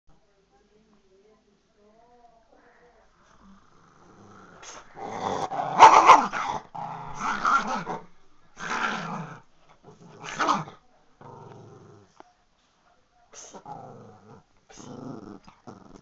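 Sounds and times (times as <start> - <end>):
small dog play-growling: 3.2 - 12.2, 13.4 - 16.0.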